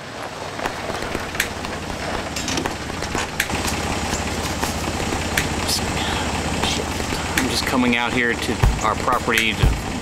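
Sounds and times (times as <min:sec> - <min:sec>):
engine idling: 0:00.0 - 0:10.0
metal gate clicks and clanks: 0:02.3 - 0:02.7.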